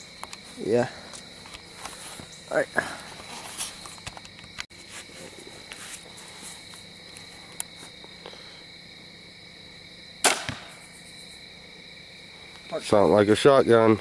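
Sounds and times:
crickets chirping: 0.0s - 14.0s
crossbow firing with sharp crack: 10.2s - 10.9s.

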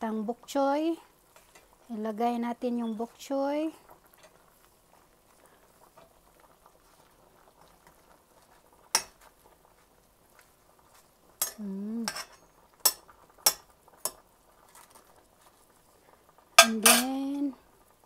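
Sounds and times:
metal ladle clinking on pot: 11.4s - 14.2s, 16.6s - 17.2s
person humming: 11.6s - 12.1s.

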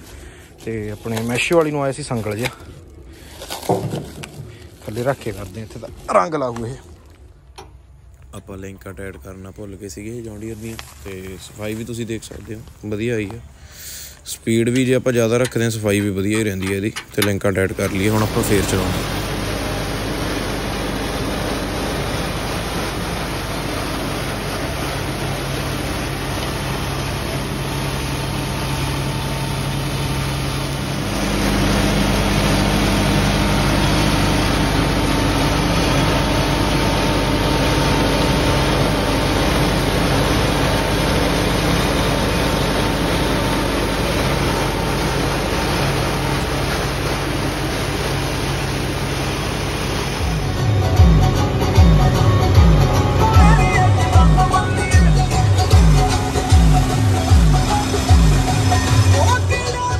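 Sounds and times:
tractor engine under load: 0.0s - 59.9s.

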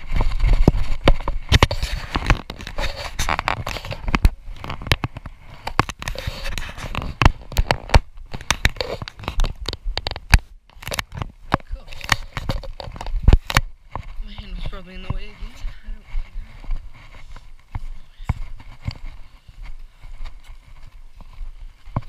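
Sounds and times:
camera handling clicks and rustling: 1.0s - 14.0s.

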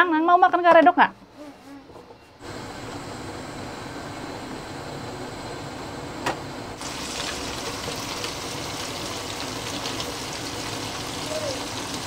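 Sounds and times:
paste sizzling in hot oil: 6.8s - 12.0s.

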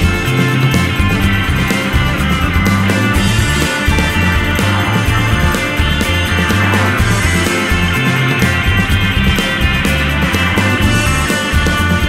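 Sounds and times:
rock music: 0.0s - 12.0s.

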